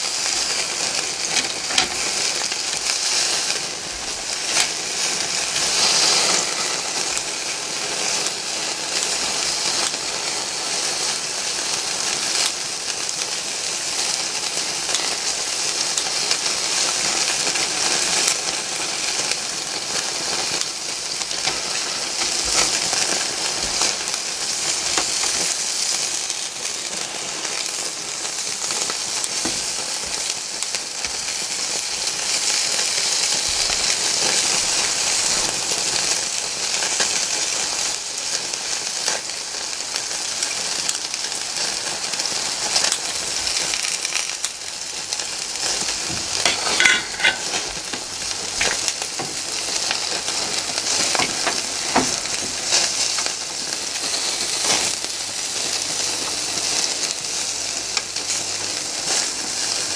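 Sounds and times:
meat sizzling on a grill: 0.0 - 59.9
sharp pops and clicks: 51.0 - 53.4.

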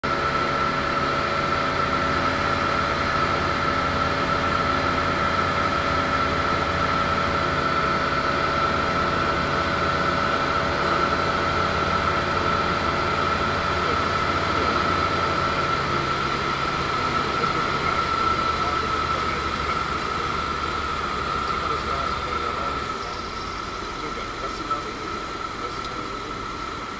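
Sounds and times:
aircraft engine and propeller: 0.0 - 26.9
constant high-pitched tone: 13.3 - 26.9.

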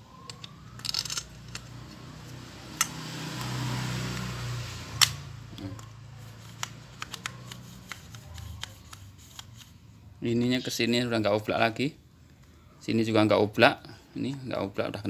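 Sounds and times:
sharp metallic clicks: 2.8 - 4.3, 5.0 - 5.9.

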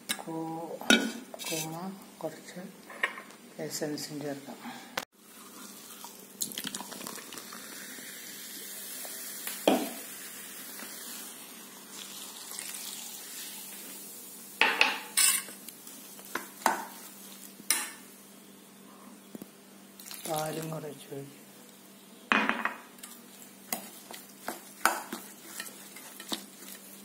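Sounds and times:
soda fizzing: 5.2 - 14.5, 20.0 - 20.9
spoon stirring batter in bowl: 23.0 - 27.0.

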